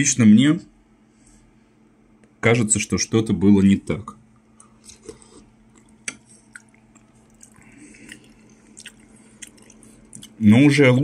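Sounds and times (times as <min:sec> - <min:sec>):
low steady hum: 0:00.0 - 0:11.0
sipping and chewing: 0:04.5 - 0:10.4.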